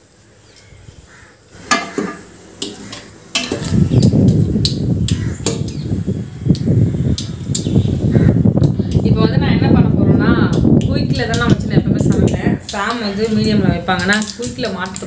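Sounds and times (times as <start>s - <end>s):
oil sizzling: 0.0s - 15.0s
spatula stirring and scraping pot: 1.6s - 4.1s
wooden spatula tapping pot: 1.7s - 4.0s.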